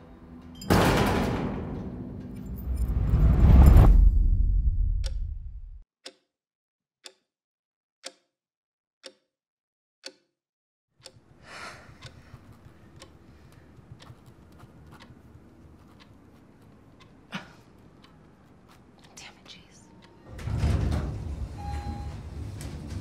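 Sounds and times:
wall clock ticking: 4.9s - 6.3s, 7.0s - 7.2s, 8.0s - 8.3s, 9.0s - 9.2s, 10.0s - 10.3s, 11.0s - 20.2s.

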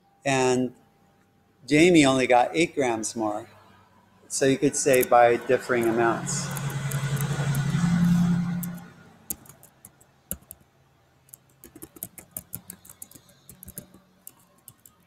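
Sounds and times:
computer keyboard key clicks: 8.7s - 10.6s, 11.3s - 15.0s.

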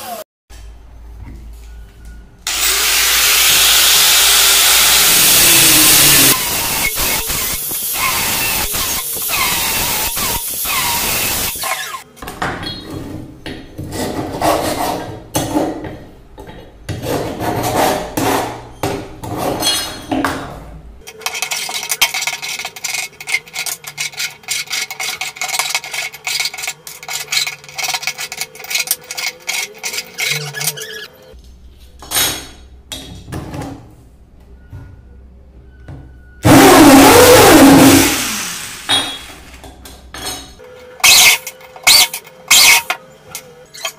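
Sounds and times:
angle grinder running: 2.5s - 12.0s, 36.5s - 39.3s
hand file scraping metal: 21.1s - 31.1s, 41.0s - 43.0s.

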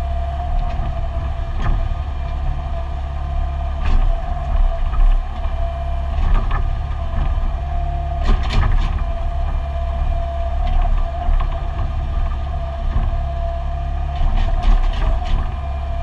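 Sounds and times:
excavator diesel engine: 0.0s - 16.0s.

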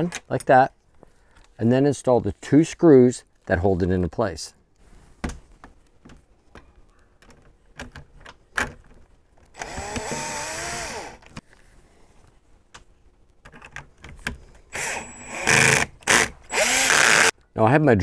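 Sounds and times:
cordless drill motor whine: 9.6s - 11.2s, 14.7s - 17.3s.

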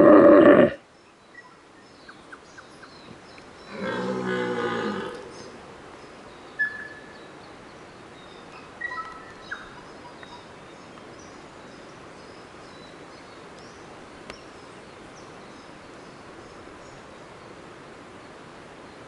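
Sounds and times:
background hiss: 0.0s - 19.0s
faint high bird chirps: 5.3s - 7.5s, 8.2s - 17.0s.

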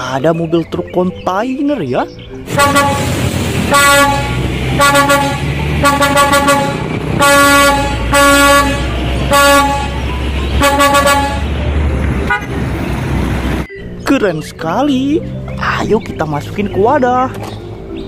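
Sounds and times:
truck engine rumble: 2.1s - 13.7s
truck horn blasts: 2.5s - 12.8s.

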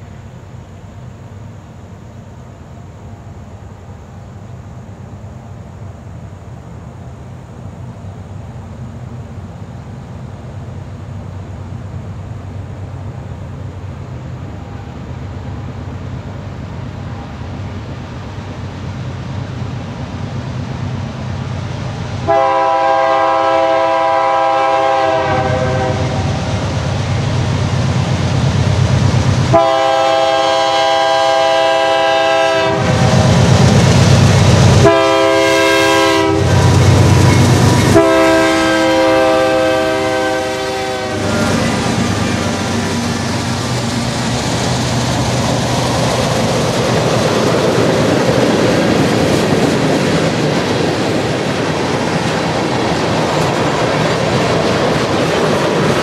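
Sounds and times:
clickety-clack of train wheels: 19.2s - 56.0s
locomotive horn blasts: 22.3s - 26.2s, 29.5s - 33.1s, 34.8s - 36.6s, 37.9s - 42.6s.

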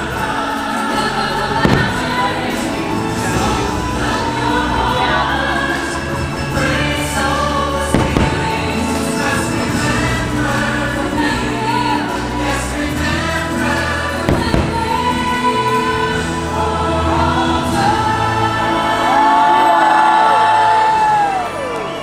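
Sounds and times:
choir singing with accompaniment: 0.0s - 22.0s
firework bang: 1.6s - 2.3s, 7.9s - 8.8s, 14.3s - 15.2s.

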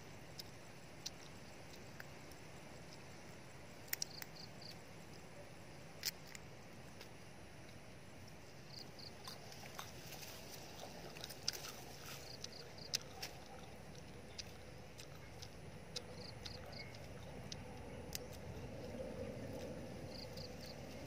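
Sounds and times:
small animal chirping: 10.7s - 21.0s.

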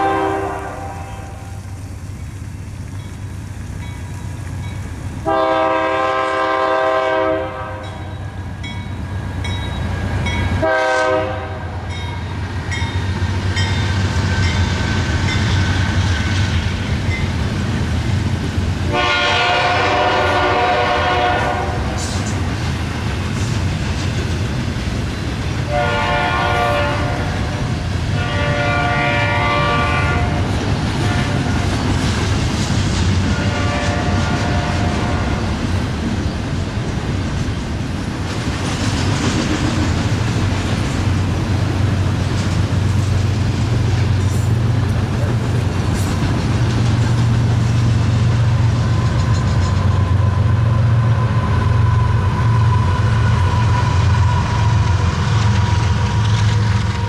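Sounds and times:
locomotive air horn blasts: 0.0s - 1.6s, 5.2s - 8.4s, 10.6s - 12.0s, 18.9s - 22.2s, 25.7s - 31.6s, 33.3s - 35.4s
train wheels rumbling on rail: 0.0s - 57.0s.

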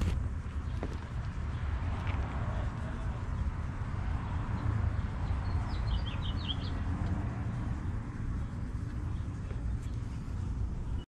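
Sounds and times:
low outdoor rumble: 0.0s - 11.0s
bird chirping: 2.5s - 11.0s.

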